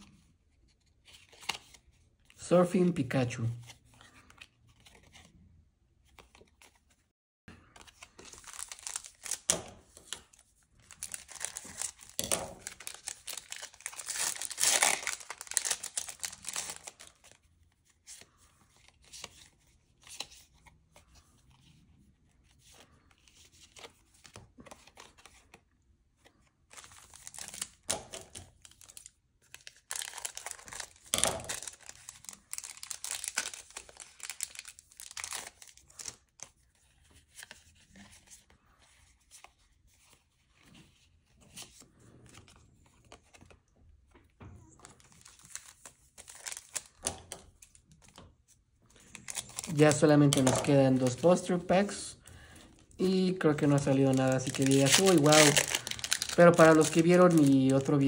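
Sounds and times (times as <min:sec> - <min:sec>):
foil pack crinkling and tearing: 0:07.8 - 0:17.4, 0:26.7 - 0:36.4, 0:44.9 - 0:47.8, 0:49.0 - 0:51.6, 0:52.4 - 0:58.0.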